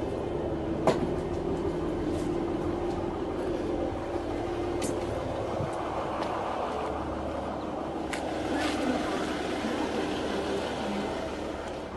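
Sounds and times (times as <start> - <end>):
diesel engine idling: 0.0 - 11.9.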